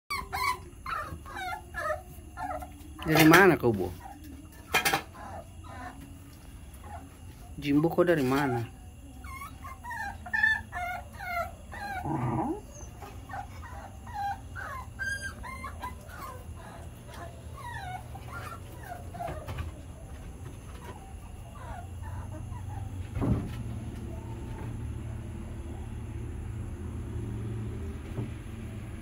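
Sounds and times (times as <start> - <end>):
dogs whining: 0.1 - 6.2, 8.2 - 23.1.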